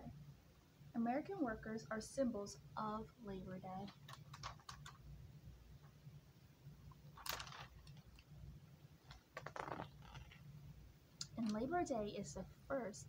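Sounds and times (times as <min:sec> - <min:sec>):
low room hum: 0:00.0 - 0:13.0
book pages rustling: 0:07.2 - 0:08.3.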